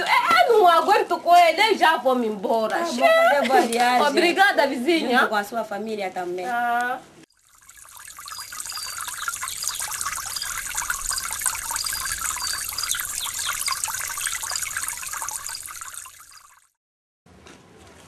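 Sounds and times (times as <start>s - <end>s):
trickling hissing water noise: 7.2s - 16.8s
quick high chirps: 7.5s - 16.7s.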